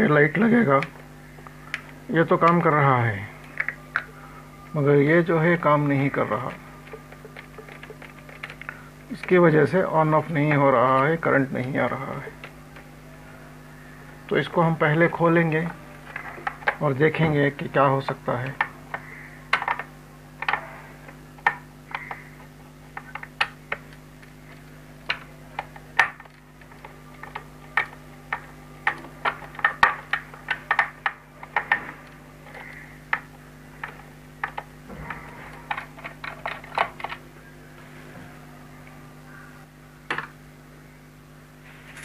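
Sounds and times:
steady low hum: 0.0s - 42.0s
screwdriver clicking on plastic: 21.4s - 24.3s, 25.0s - 37.2s.

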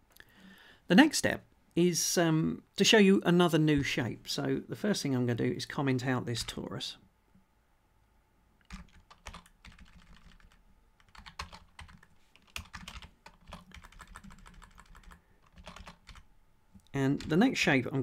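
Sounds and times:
keyboard typing: 8.6s - 17.5s.

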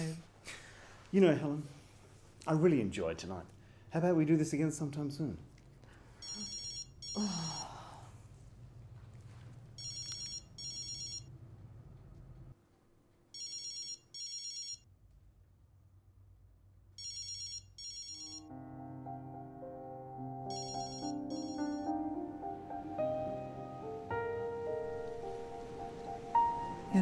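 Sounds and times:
phone ringtone trills: 6.2s - 7.6s, 9.8s - 11.3s, 13.4s - 14.8s, 17.0s - 18.5s, 20.5s - 21.9s
soft music: 18.2s - 27.0s.

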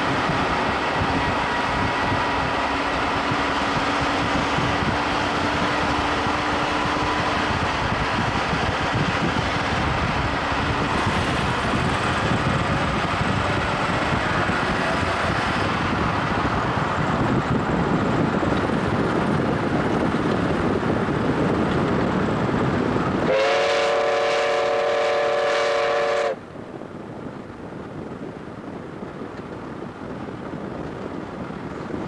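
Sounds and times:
wind and road noise: 0.0s - 32.0s
steam locomotive whistle blast: 23.2s - 26.4s.

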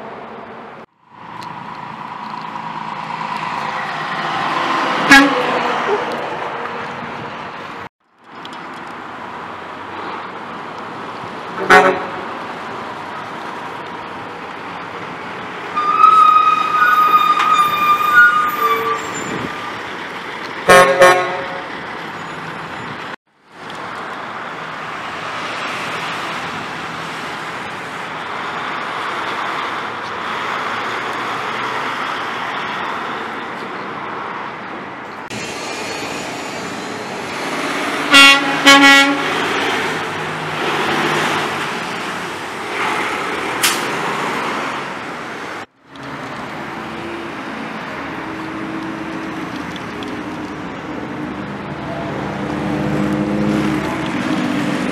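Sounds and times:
passing trucks and cars: 0.0s - 54.9s
truck horn blasts: 5.0s - 5.7s, 11.6s - 12.3s, 15.8s - 19.6s, 20.7s - 21.7s, 38.1s - 39.4s.

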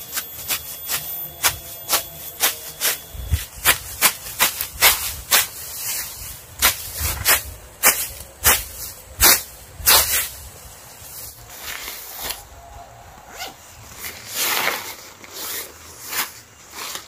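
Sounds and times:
hand blade hacking through grass: 0.3s - 10.4s.

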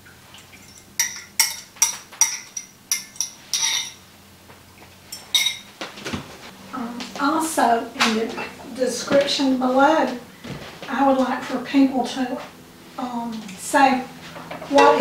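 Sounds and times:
metal utensil clinking on cookware: 0.6s - 4.0s, 5.1s - 5.6s, 14.7s - 15.0s.

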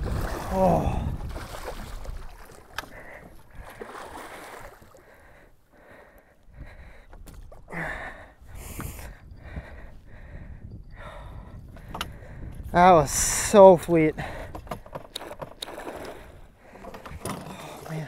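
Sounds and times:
water lapping against boat: 0.0s - 7.7s, 13.4s - 18.0s
light clicks and knocks: 14.5s - 15.8s.

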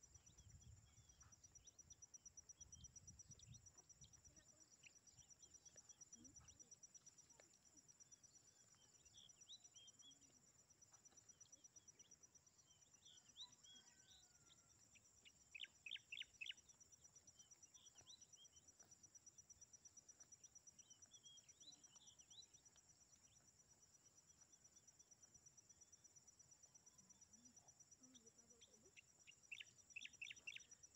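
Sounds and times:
insect trill: 11.3s - 18.6s, 20.4s - 30.9s
small birds chirping: 15.2s - 25.3s, 26.8s - 30.9s.

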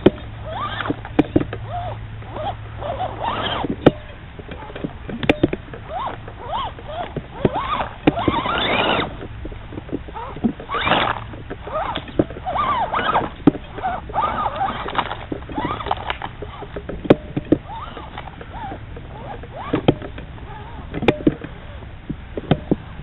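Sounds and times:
toy car motor whining: 0.4s - 1.0s, 1.7s - 3.8s, 5.8s - 9.3s, 10.2s - 16.7s, 17.6s - 20.8s.

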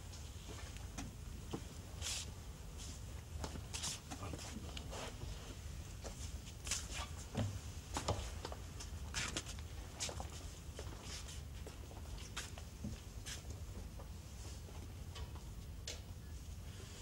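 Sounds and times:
scuffs and clicks of movement: 0.4s - 5.3s, 6.0s - 14.1s.

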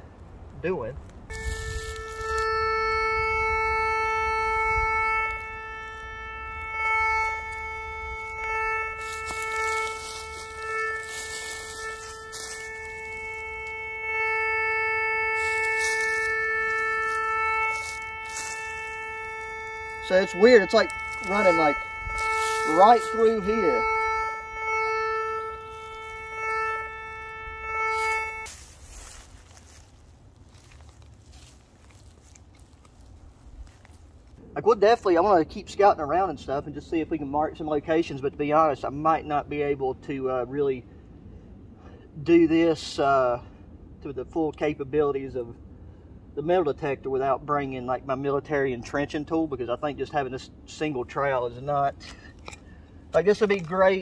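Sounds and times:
metal detector buzzing tone: 1.3s - 29.8s.

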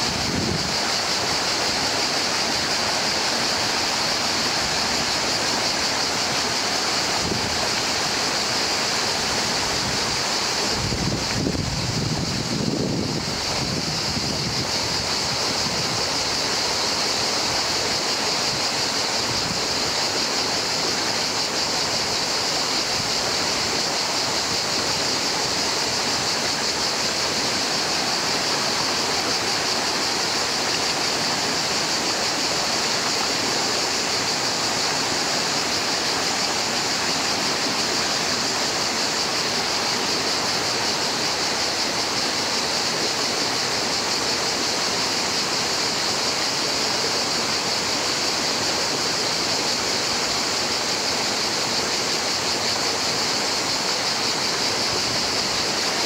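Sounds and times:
river rushing over stones: 0.0s - 56.0s.

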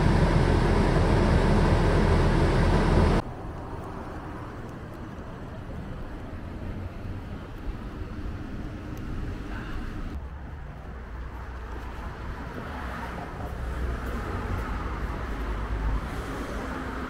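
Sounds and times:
cars passing with low rumble: 0.0s - 17.0s.

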